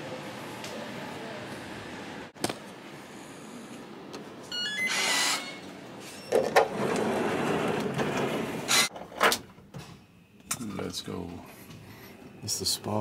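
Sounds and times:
door sliding open mechanically: 6.3s - 9.4s.

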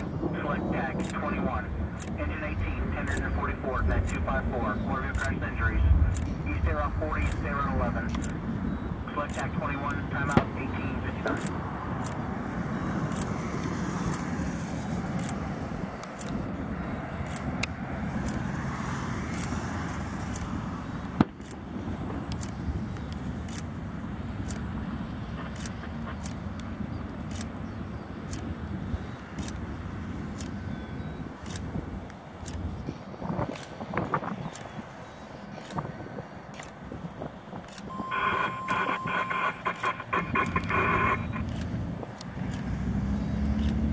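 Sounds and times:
scanner radio chatter: 0.0s - 14.4s, 15.3s - 42.4s
steady radio tone: 0.0s - 42.3s
distant airplane engine rumble: 0.0s - 43.9s
sharp click: 15.2s - 15.4s.

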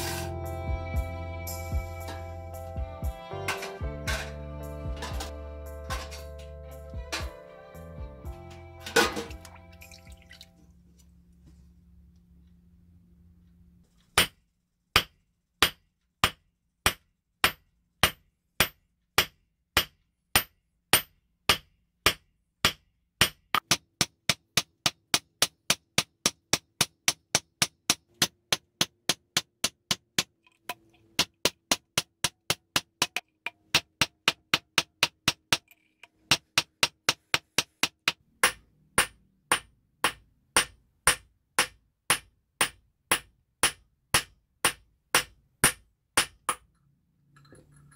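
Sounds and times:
hammer striking metal: 3.5s - 6.4s, 8.8s - 9.5s, 38.0s - 46.7s.

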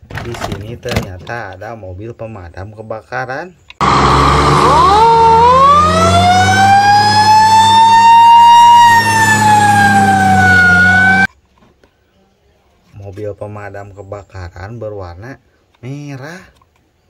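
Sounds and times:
fire truck siren wailing: 3.8s - 11.3s.

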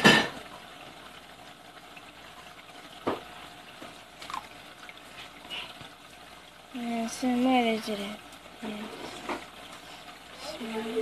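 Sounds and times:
water trickling: 0.0s - 11.0s
water splashing: 1.2s - 7.8s.

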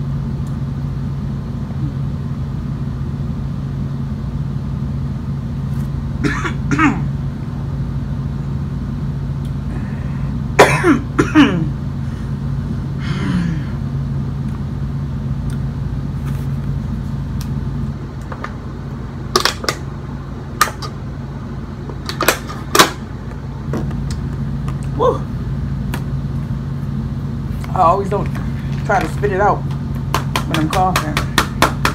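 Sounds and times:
steady low hum: 0.0s - 31.9s
woman coughing hard: 6.2s - 7.1s, 10.6s - 11.8s.

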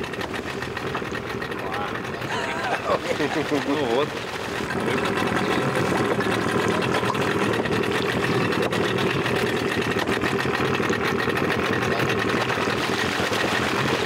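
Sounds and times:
boat engine idling: 0.0s - 14.0s.

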